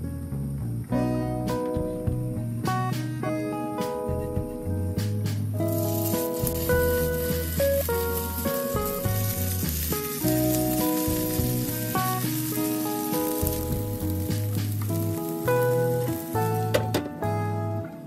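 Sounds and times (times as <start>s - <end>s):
background music: 0.4s - 18.0s
batter sizzling in frying pan: 5.2s - 17.0s.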